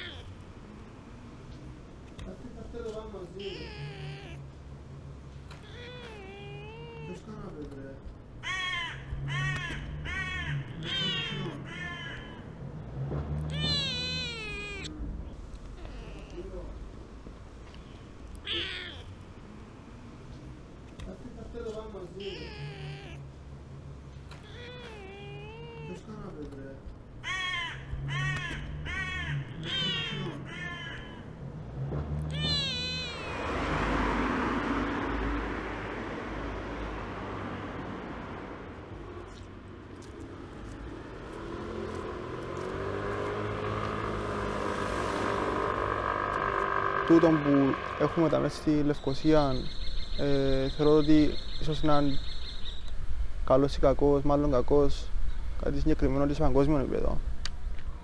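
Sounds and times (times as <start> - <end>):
cat meowing: 0.0 - 0.3, 3.4 - 4.5, 5.5 - 7.2, 8.4 - 12.4, 13.5 - 15.0, 15.8 - 16.7, 18.4 - 19.2, 22.2 - 23.3, 24.3 - 26.1, 27.2 - 31.3, 32.2 - 33.7.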